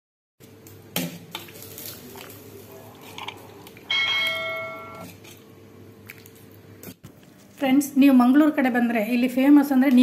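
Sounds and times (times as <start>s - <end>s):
low steady hum: 0.7s - 9.9s
bell-like chime: 3.9s - 5.0s.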